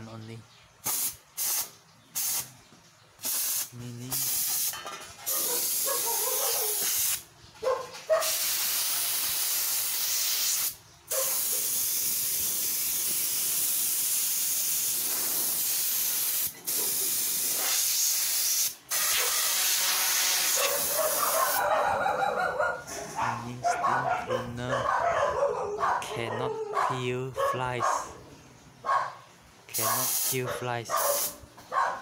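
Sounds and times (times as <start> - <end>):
steam cleaner hissing: 0.9 - 2.5, 3.2 - 4.7, 8.2 - 21.6, 29.8 - 30.4.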